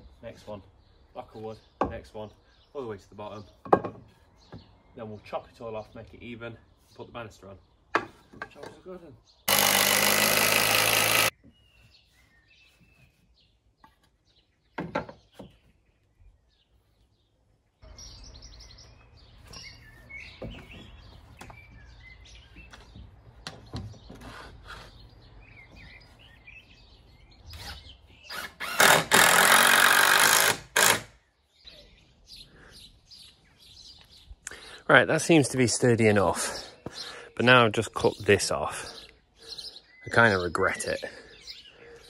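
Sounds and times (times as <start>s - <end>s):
birds chirping: 0.0s - 42.0s
cordless drill driving screws: 9.5s - 11.3s, 27.5s - 31.1s.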